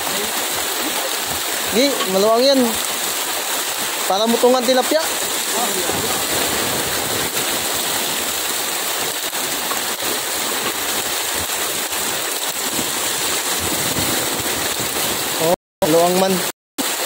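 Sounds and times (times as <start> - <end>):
fish splashing in water: 5.1 - 15.4.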